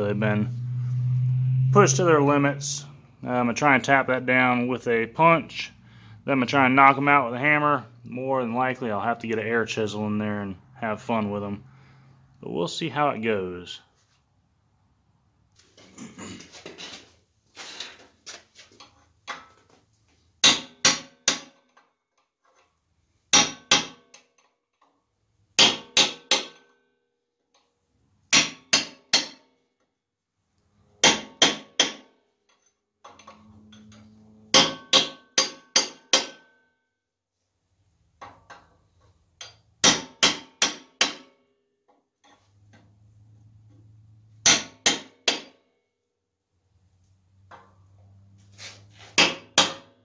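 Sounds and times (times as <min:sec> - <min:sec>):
hammer striking steel punch: 0:20.4 - 0:21.6, 0:23.3 - 0:24.0, 0:25.6 - 0:26.7, 0:28.3 - 0:29.4, 0:31.0 - 0:32.1, 0:34.5 - 0:36.5, 0:39.8 - 0:41.4, 0:44.4 - 0:45.6, 0:49.2 - 0:49.9.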